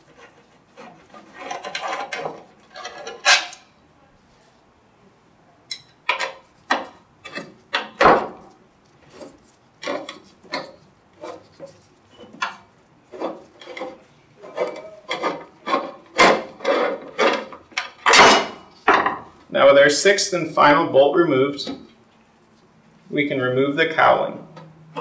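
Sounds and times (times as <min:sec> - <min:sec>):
hex key scraping screws: 0:00.0 - 0:03.6.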